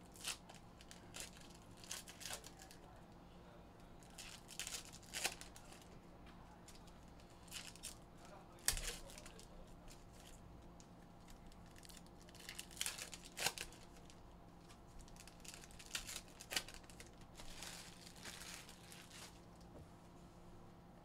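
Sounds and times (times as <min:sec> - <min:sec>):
foil wrappers tearing and crinkling: 0:00.0 - 0:02.8, 0:04.0 - 0:05.9, 0:06.7 - 0:08.0, 0:08.6 - 0:10.4, 0:11.2 - 0:19.5.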